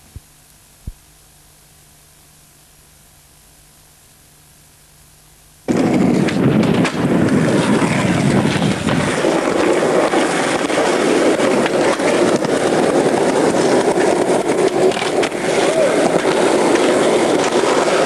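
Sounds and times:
skateboard wheels rolling on concrete: 0:05.6 - 0:18.0
skateboard clacks: 0:05.7 - 0:18.0.

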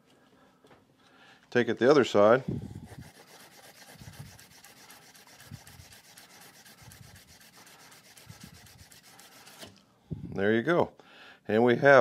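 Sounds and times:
emery cloth rubbing on shaft: 0:02.6 - 0:09.8.

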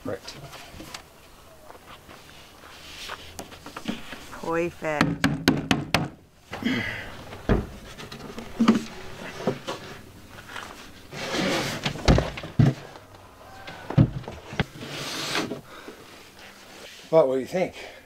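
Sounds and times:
wooden box knocking and thumping: 0:05.0 - 0:06.2, 0:11.8 - 0:14.8
wooden box scraping: 0:07.2 - 0:15.7.

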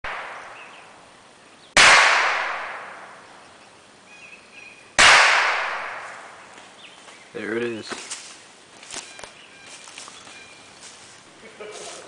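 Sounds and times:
rifle shots echoing: 0:00.0 - 0:00.7, 0:01.8 - 0:03.2, 0:05.0 - 0:06.3.

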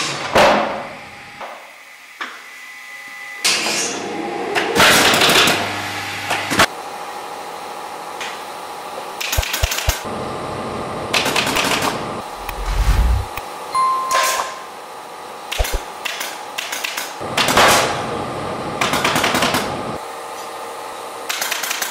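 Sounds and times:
pneumatic staple gun firing: 0:21.3 - 0:21.9.

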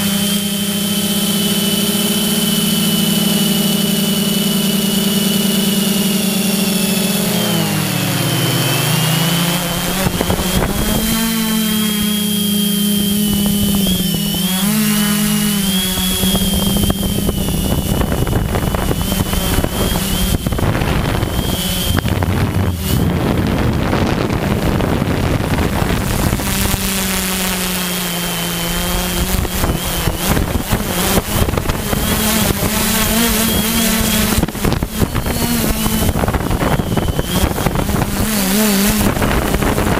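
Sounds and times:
drone motors humming and whining: 0:00.0 - 0:39.9
rushing wind: 0:05.0 - 0:39.9.

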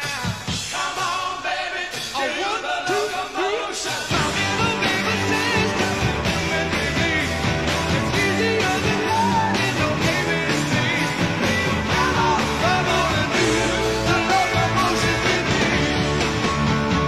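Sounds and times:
person singing: 0:00.0 - 0:16.1
drums: 0:00.0 - 0:17.0
electric guitar: 0:04.1 - 0:17.0.

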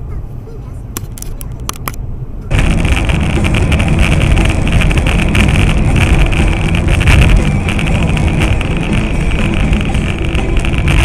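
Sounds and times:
vehicle engine and road rumble: 0:00.0 - 0:11.0
wind on microphone: 0:02.5 - 0:11.0.

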